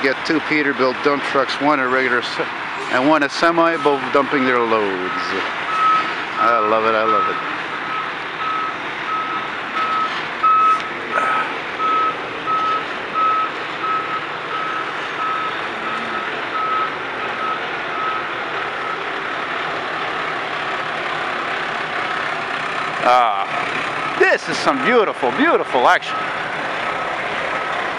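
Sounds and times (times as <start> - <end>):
diesel engine running: 0.0 - 27.9
truck backup alarm beeping: 3.0 - 21.5, 23.8 - 26.5.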